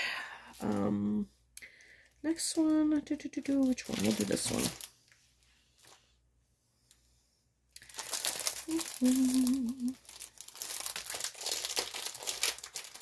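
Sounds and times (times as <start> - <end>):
plastic packaging crinkling: 3.4 - 5.0, 7.8 - 13.0
person humming: 8.6 - 10.0.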